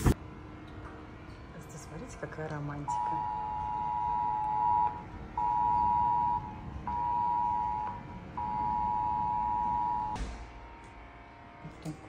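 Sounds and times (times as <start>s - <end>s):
electronic alarm beeps: 2.9s - 10.2s.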